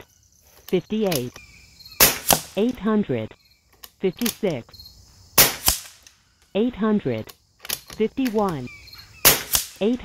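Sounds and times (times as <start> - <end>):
insects buzzing: 0.0 - 10.0
air rifle shot crack: 2.0 - 2.5, 5.4 - 6.0, 9.2 - 9.8.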